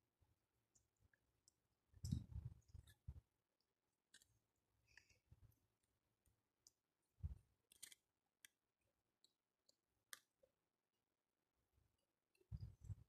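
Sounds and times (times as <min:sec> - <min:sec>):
small clicks of eating: 0:00.7 - 0:10.6.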